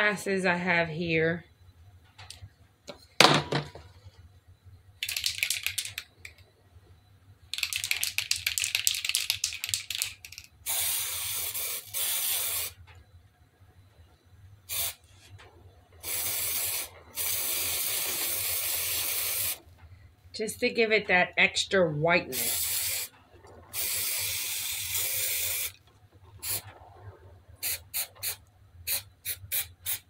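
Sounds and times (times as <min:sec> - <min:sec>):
spray can rattling: 0:05.0 - 0:06.1, 0:07.5 - 0:12.8, 0:14.7 - 0:15.0, 0:16.0 - 0:19.6, 0:22.3 - 0:23.1, 0:23.8 - 0:25.8, 0:26.4 - 0:26.7, 0:27.6 - 0:30.0
spray can hissing: 0:07.6 - 0:12.8, 0:14.7 - 0:15.0, 0:16.0 - 0:19.6, 0:22.3 - 0:23.1, 0:23.8 - 0:25.8, 0:26.4 - 0:26.7, 0:27.6 - 0:30.0.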